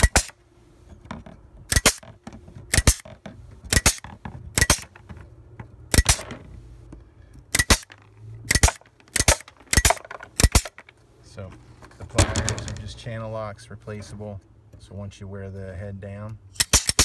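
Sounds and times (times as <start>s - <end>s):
wire cutters snapping steel wire: 0.0s - 0.4s, 1.7s - 3.1s, 3.7s - 5.0s, 5.9s - 6.3s, 7.5s - 10.9s, 16.5s - 17.0s.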